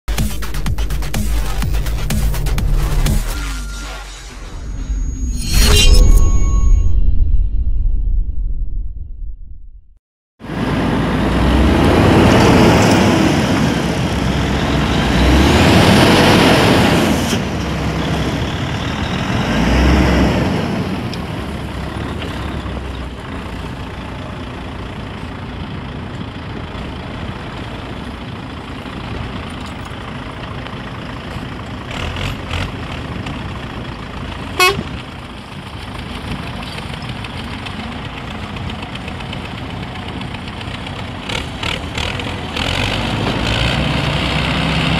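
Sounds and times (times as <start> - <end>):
tractor engine working hard: 10.5 - 44.9
short horn toot: 34.6 - 35.0.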